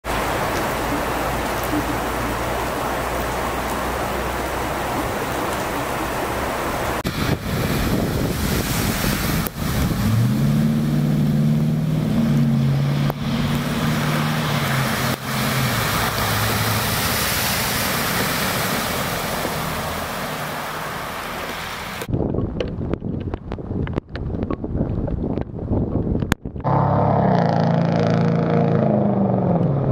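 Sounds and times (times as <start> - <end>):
car engine hum: 0.0 - 22.1
heavy rain pouring: 0.0 - 22.1.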